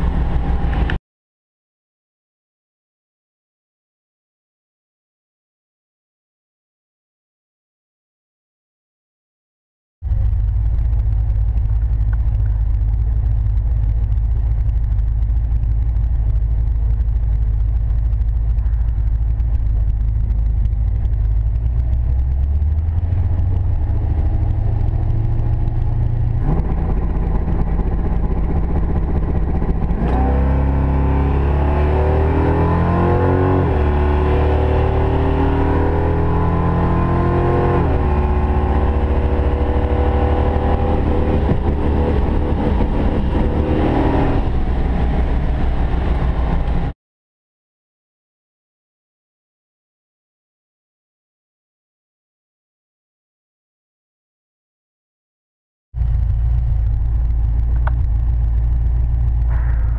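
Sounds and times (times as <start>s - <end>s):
car engine idling and revving: 0.0s - 1.0s, 10.0s - 47.0s, 56.0s - 59.9s.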